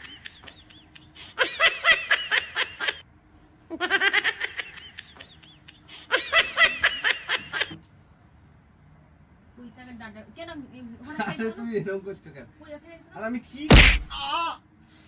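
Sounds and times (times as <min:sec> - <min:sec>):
high-pitched giggling laughter: 0:00.0 - 0:03.0, 0:03.7 - 0:07.8.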